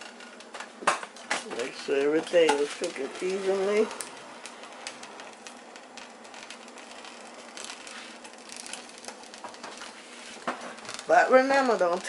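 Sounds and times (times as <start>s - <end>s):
small crackling pops: 0.0s - 12.0s
food sizzling in a skillet: 6.6s - 10.5s.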